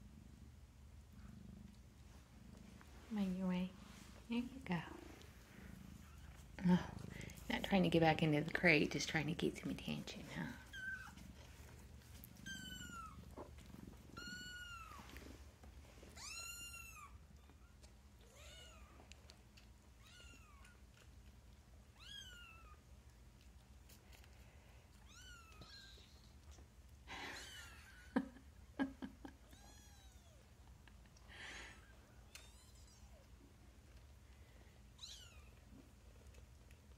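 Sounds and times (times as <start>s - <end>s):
rustling: 1.6s - 16.8s.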